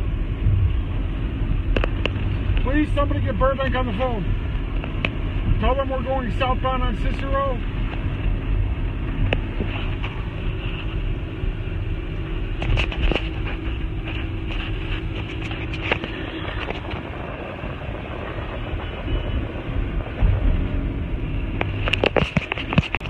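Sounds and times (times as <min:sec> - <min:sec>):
engine and tyre rumble: 0:00.0 - 0:23.0.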